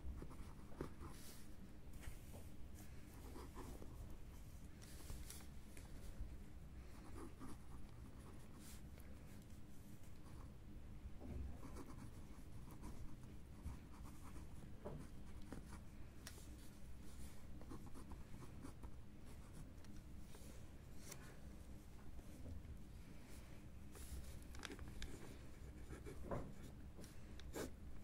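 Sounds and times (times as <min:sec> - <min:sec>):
low steady background hum: 0:00.0 - 0:28.0
pen scratching on paper: 0:00.2 - 0:01.3, 0:11.6 - 0:15.8.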